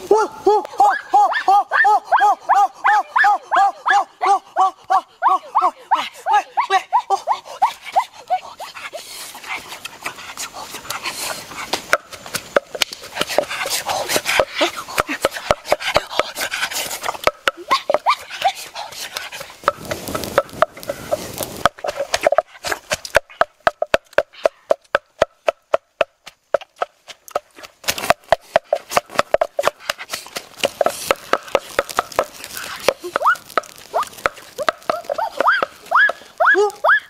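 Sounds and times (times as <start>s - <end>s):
wooden pestle pounding in mortar: 21.6s - 32.3s.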